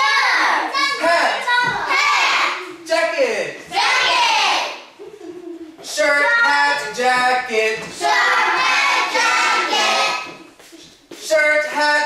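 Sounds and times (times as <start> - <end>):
children singing together: 8.0 - 10.5.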